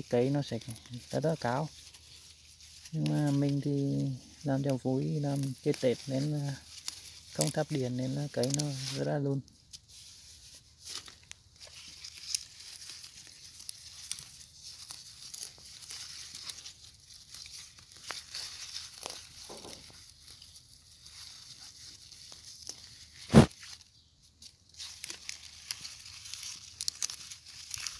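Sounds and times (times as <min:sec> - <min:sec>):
leaves rustling and crackling: 0:00.0 - 0:27.9.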